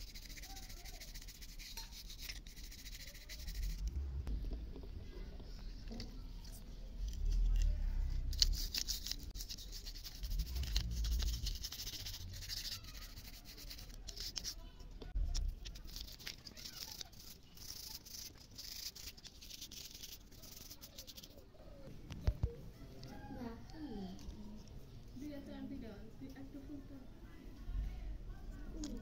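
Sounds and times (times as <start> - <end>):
toothbrush scrubbing circuit board: 0.0 - 3.9, 7.0 - 21.4.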